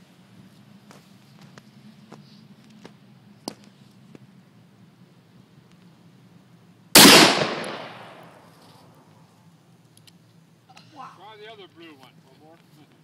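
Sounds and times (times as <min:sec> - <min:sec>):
loud revolver shot with echo: 0:07.0 - 0:08.4.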